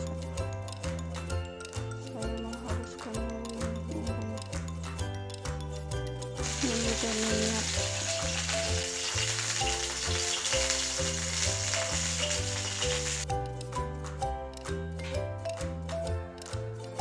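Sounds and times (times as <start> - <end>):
background music with bass line: 0.0 - 17.0
food sizzling in hot oil: 6.4 - 13.3.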